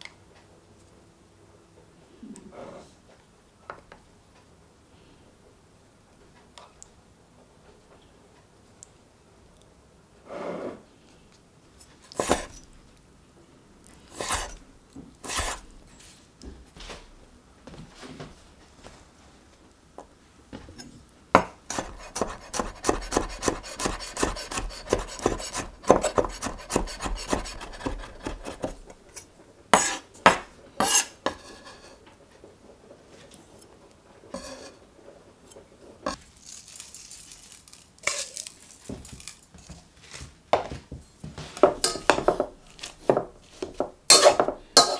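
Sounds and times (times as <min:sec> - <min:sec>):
knife chopping on wooden board: 0:12.2 - 0:12.5, 0:15.2 - 0:15.6, 0:21.4 - 0:29.0, 0:29.8 - 0:31.7, 0:41.6 - 0:44.9.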